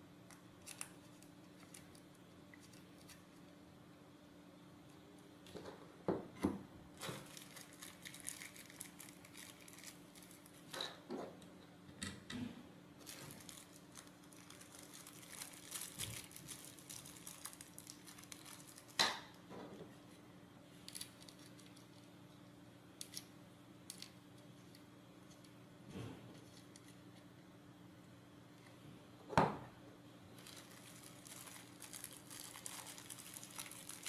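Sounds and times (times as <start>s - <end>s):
faint steady hum: 0.0s - 34.0s.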